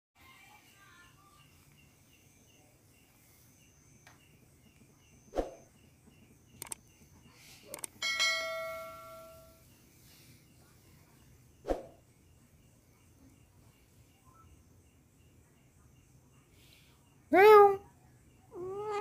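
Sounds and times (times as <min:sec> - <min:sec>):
faint chirps: 0:00.2 - 0:08.0, 0:08.7 - 0:19.0
quick clicks: 0:06.6 - 0:06.8, 0:07.7 - 0:08.0
bright bell ding: 0:08.0 - 0:09.6.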